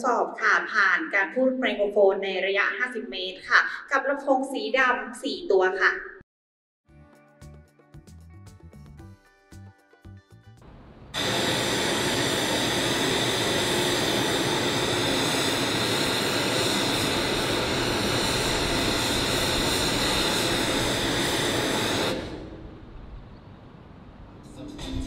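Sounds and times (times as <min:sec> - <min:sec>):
loud hissing test noise from horn speaker: 0:11.2 - 0:22.7.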